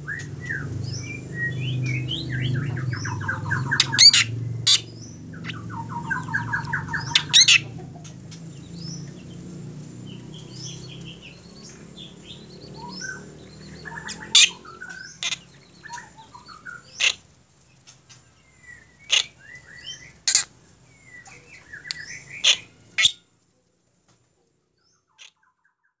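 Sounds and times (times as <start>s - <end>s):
bird chirps whistles and sharp calls: 0.0s - 7.8s, 10.2s - 17.2s, 18.6s - 23.2s.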